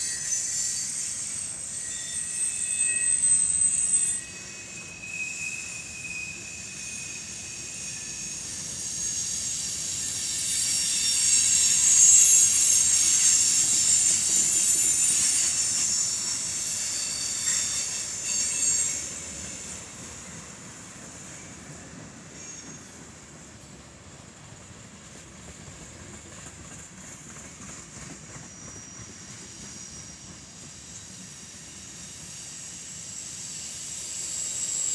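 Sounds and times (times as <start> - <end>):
high-pitched wheel squeal: 0.0 - 20.5, 21.2 - 23.0, 28.2 - 34.9.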